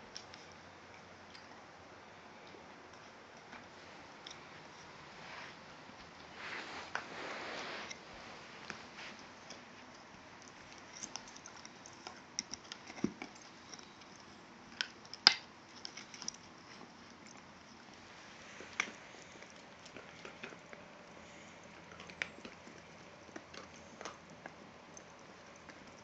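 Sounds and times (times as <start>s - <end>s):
dogs gnawing antlers: 6.0s - 26.0s.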